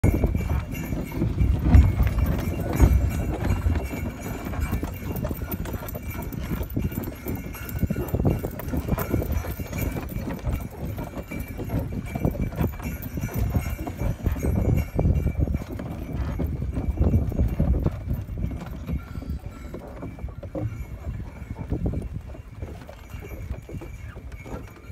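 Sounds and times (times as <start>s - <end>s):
horse hooves in snow: 0.0s - 24.9s.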